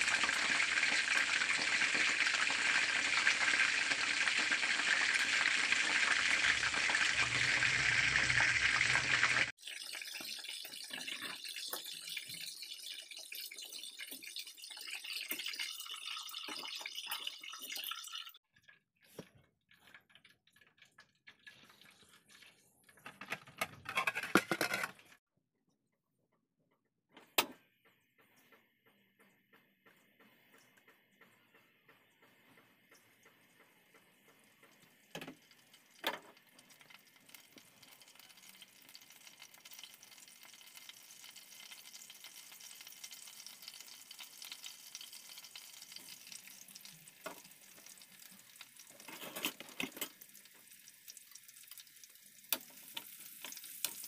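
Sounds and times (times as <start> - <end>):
chicken sizzling in hot oil: 0.0 - 18.4, 34.1 - 54.0.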